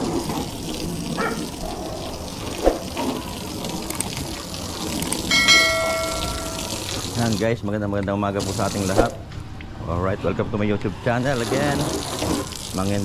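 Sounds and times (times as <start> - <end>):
hose water spraying on car: 0.0 - 7.6, 8.4 - 9.2, 11.1 - 13.0.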